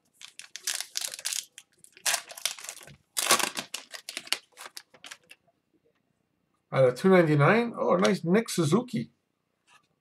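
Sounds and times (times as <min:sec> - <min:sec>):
foil wrapper tearing and crinkling: 0:00.2 - 0:05.4.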